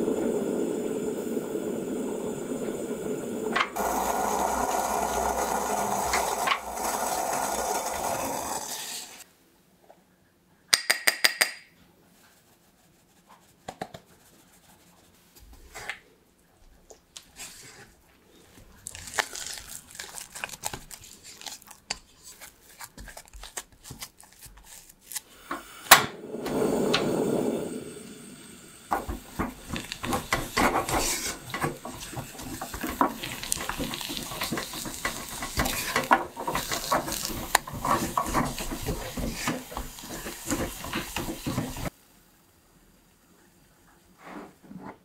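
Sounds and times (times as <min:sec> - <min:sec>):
spatula scraping dough in saucepan: 0:03.8 - 0:09.2, 0:28.9 - 0:41.9.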